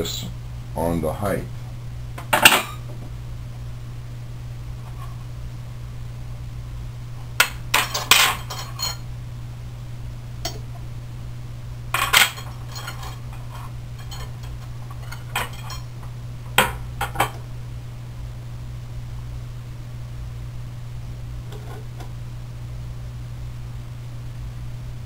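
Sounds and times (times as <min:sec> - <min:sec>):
steady low hum: 0:00.0 - 0:25.0
metal rods clinking: 0:12.0 - 0:13.2, 0:14.0 - 0:15.9.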